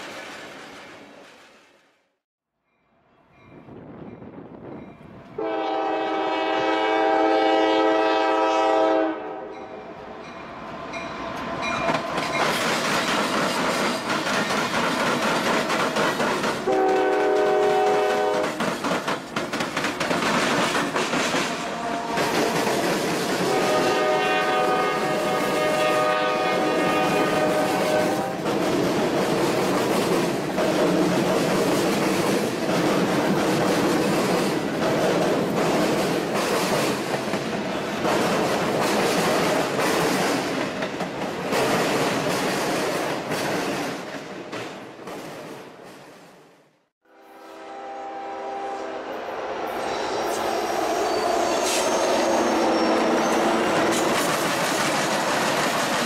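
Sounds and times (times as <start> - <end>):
locomotive air horn blasts: 5.4 - 9.6, 16.7 - 18.5, 21.7 - 22.3, 23.4 - 28.4, 47.0 - 50.7
train wheels clattering on rails: 11.0 - 46.4, 51.5 - 56.0.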